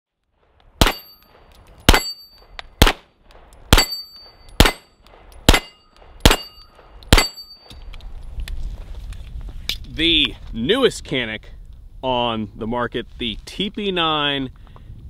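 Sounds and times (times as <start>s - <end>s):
steel target ringing: 0.8s - 2.5s, 3.7s - 7.8s
pistol shots: 0.8s - 7.4s.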